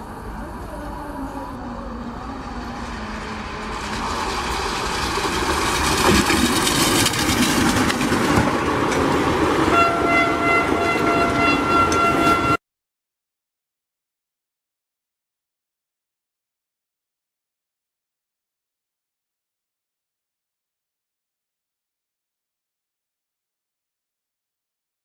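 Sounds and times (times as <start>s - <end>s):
train wheels rushing on rails: 0.0s - 12.6s
train horn: 9.6s - 12.6s.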